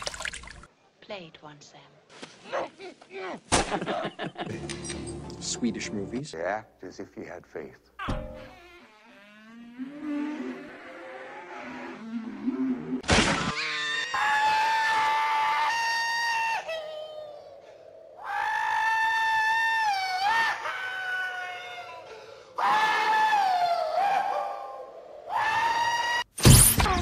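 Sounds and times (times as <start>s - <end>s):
high-pitched human screams: 13.5s - 17.5s, 18.2s - 27.0s.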